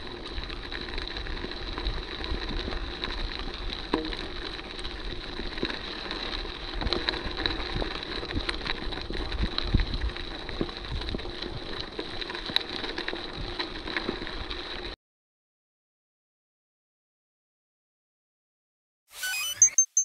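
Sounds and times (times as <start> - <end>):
wind rumble on microphone: 0.0 - 12.3
bike tyres crunching on gravel: 0.0 - 15.0
bike knocks and rattles: 3.8 - 5.8.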